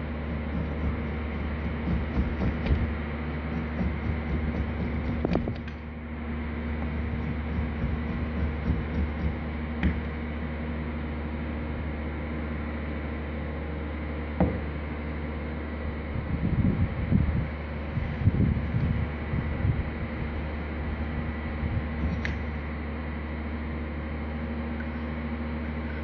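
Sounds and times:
background hum and hiss: 0.0s - 26.0s
knock: 14.4s - 14.6s.

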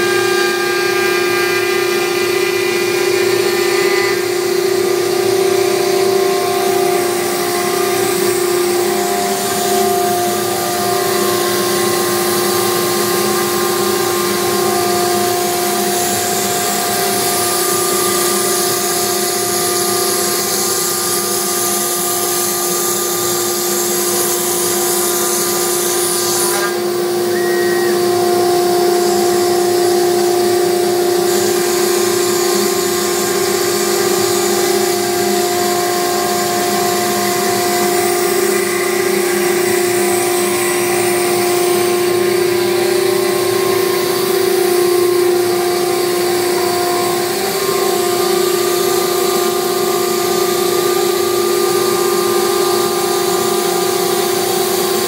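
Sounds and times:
vacuum system droning: 0.0s - 18.3s, 26.8s - 50.2s
cnc router spindle whining: 0.0s - 55.0s.

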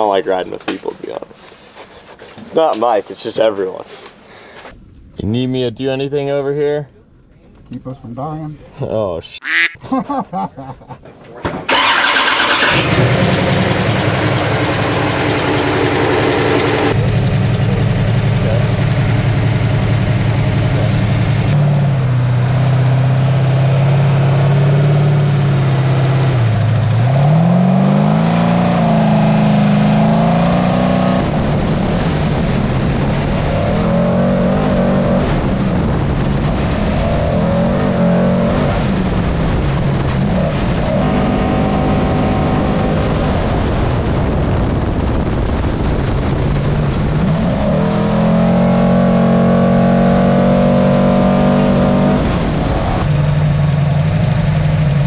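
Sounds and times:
truck engine revving: 11.7s - 43.8s, 46.2s - 55.0s
wind and dirt noise: 24.6s - 55.0s.

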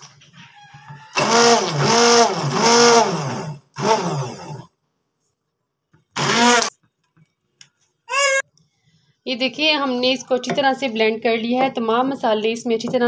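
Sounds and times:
hand blender motor: 1.1s - 4.7s, 6.2s - 6.7s.

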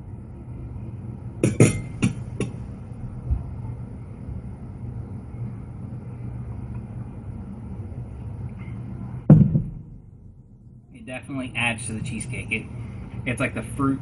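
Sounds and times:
steady low rumble: 0.0s - 14.0s
heavy thump: 9.3s - 10.1s.

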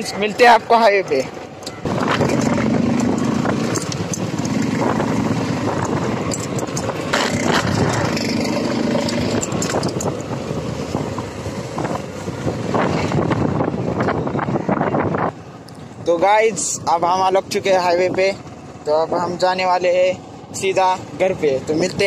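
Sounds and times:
motorcycle engine running: 0.8s - 15.1s.

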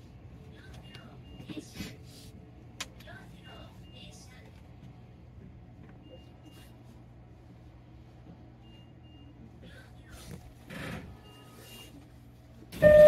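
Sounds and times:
stopped train humming: 12.4s - 13.0s.

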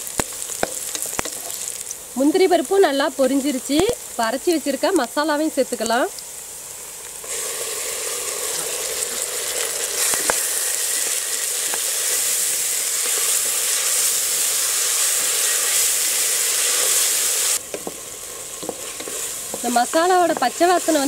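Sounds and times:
paste sizzling in hot oil: 0.0s - 21.0s
wooden spatula knocking on pot: 19.5s - 20.6s.

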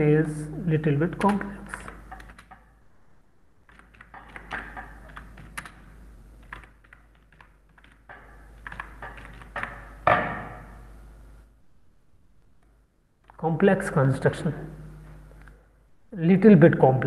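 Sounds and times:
typing on keyboard: 1.1s - 2.8s, 3.6s - 10.0s.

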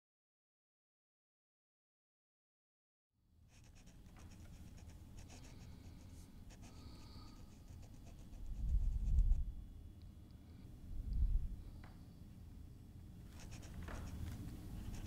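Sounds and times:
pen scratching on paper: 3.5s - 9.4s, 13.4s - 15.0s
low rumble: 10.9s - 11.6s.

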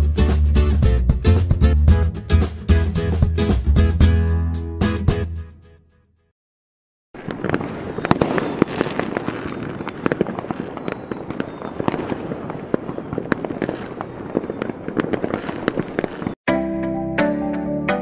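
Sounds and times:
music: 0.0s - 6.3s, 16.5s - 18.0s
crackling rush: 7.2s - 16.4s
fireworks cracking and popping: 7.2s - 16.4s.

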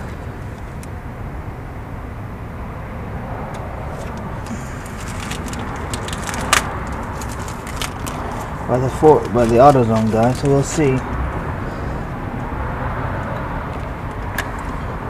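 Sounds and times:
steady low rumble: 0.0s - 15.0s
plastic packaging crinkling: 4.0s - 11.0s.

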